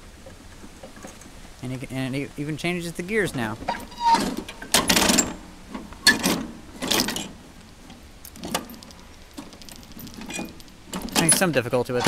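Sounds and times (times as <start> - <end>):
gear lever metallic clunks: 3.7 - 7.4, 8.4 - 12.0.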